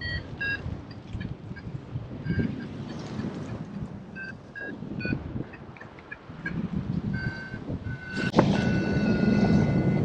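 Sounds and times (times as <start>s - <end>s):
variometer beeping: 0.0s - 3.0s, 4.2s - 10.0s
wind noise on microphone: 0.0s - 10.0s.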